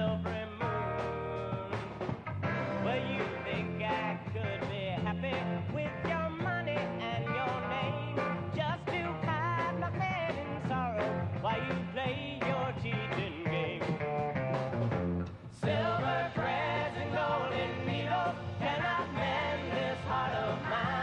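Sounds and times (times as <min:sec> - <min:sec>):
man singing: 0:00.0 - 0:02.1, 0:02.7 - 0:14.0
pop-rock band playing: 0:00.0 - 0:21.0.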